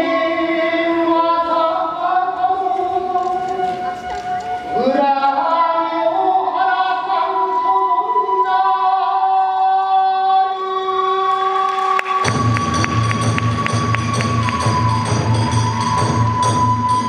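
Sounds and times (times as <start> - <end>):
chant in long held notes: 0.0 - 17.0
drum beat: 12.2 - 17.0.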